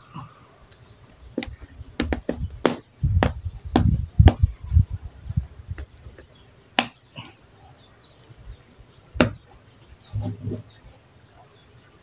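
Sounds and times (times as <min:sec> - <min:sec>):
dull thumps: 0:01.4 - 0:04.5, 0:09.2 - 0:09.5.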